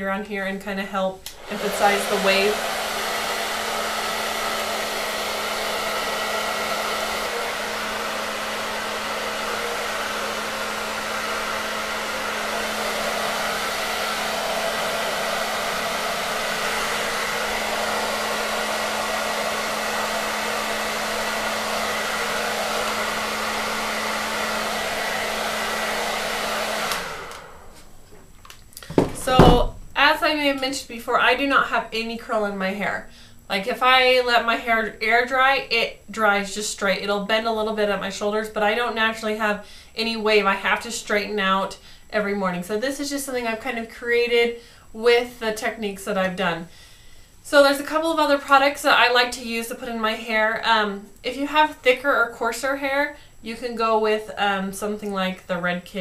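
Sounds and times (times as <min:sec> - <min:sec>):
hair dryer running: 0:01.2 - 0:28.2, 0:28.9 - 0:30.6.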